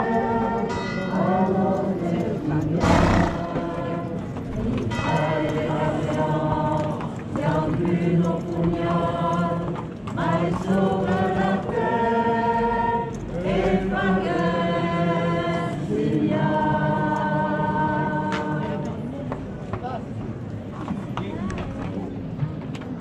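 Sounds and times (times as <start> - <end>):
choir singing long notes: 0.0 - 19.0.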